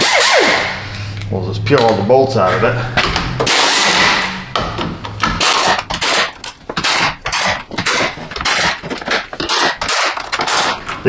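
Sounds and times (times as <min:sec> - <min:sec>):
impact tool bursts: 0:00.0 - 0:01.1, 0:03.0 - 0:11.0.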